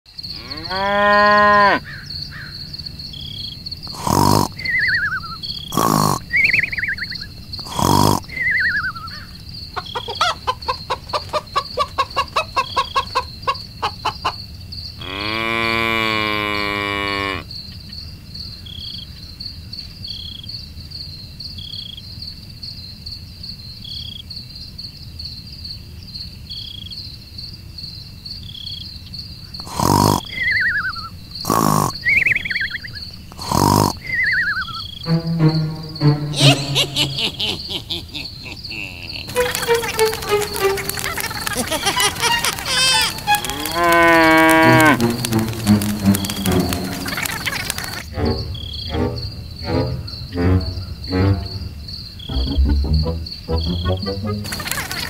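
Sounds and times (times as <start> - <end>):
insects chirring: 0.1 - 55.0
cattle mooing: 0.4 - 1.8, 43.2 - 45.7
bird chirps: 1.8 - 14.3, 29.6 - 44.0, 44.9 - 55.0
rapid clicking calls: 3.8 - 14.4, 29.6 - 35.2, 36.4 - 48.4, 53.5 - 55.0.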